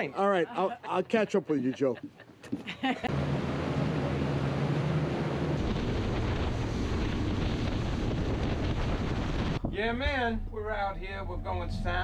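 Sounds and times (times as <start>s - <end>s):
boat engine drone: 3.0s - 9.6s
wind buffeting microphone: 5.6s - 10.4s.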